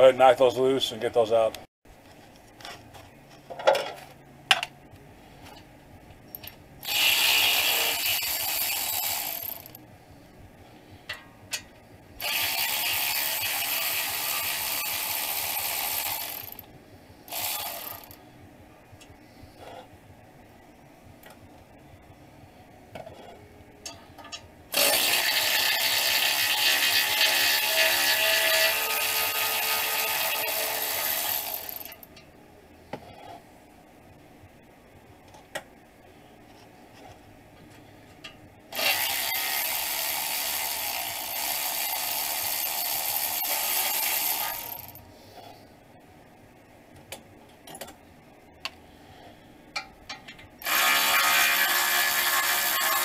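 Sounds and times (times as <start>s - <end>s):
cordless electric ratchet spinning: 6.8s - 9.8s, 12.2s - 16.6s, 17.3s - 18.2s, 24.7s - 32.0s, 38.7s - 45.0s, 50.6s - 53.0s.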